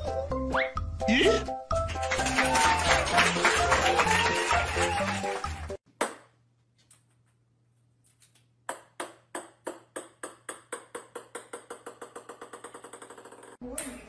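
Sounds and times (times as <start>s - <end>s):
music: 0.0s - 5.8s
ball bouncing on wooden floor: 8.7s - 13.6s.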